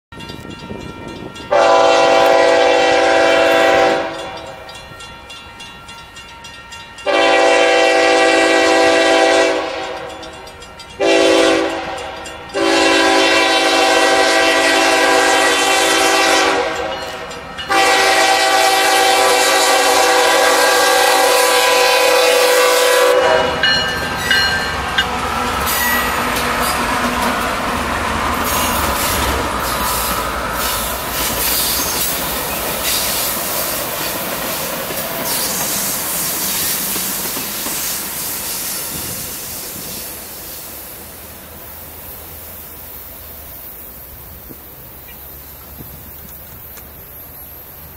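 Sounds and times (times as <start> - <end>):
locomotive rumbling past: 0.1 - 47.9
locomotive air horn blasts: 1.0 - 4.7, 6.6 - 23.8.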